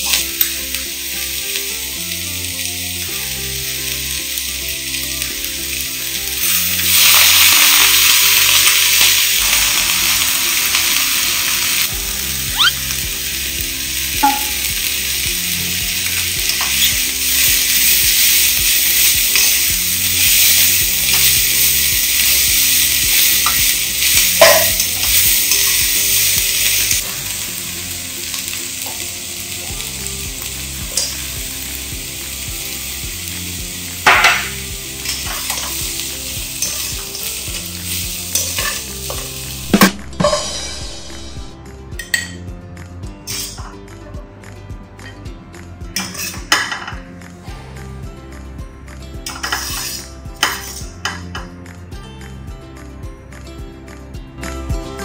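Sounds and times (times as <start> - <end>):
food sizzling in a wok: 0.0 - 42.5, 43.1 - 43.7, 45.6 - 47.0, 48.4 - 51.5
spatula clinking against wok: 14.2 - 14.7, 24.3 - 25.7, 46.0 - 47.0, 49.2 - 51.5.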